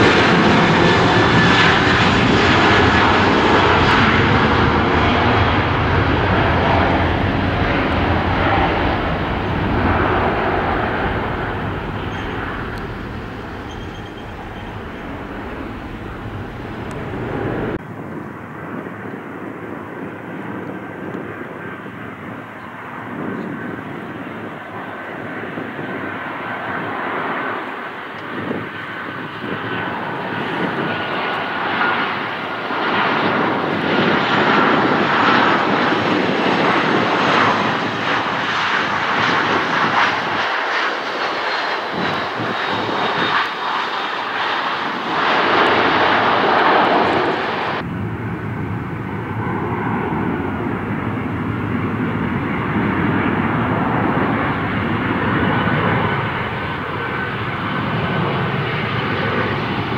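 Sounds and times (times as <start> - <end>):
airplane engines running: 0.0 - 59.9
falling whine: 2.9 - 17.8.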